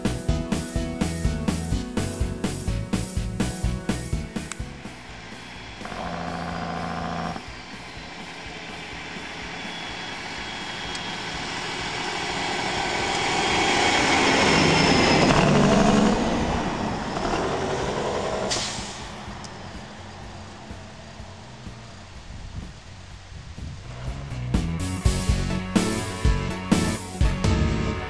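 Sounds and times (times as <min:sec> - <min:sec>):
truck driving past: 0:03.9 - 0:23.1
short hiss: 0:18.5 - 0:19.1.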